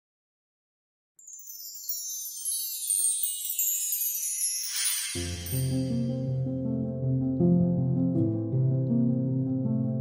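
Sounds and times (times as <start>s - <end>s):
magic sparkle chime: 1.2s - 6.4s.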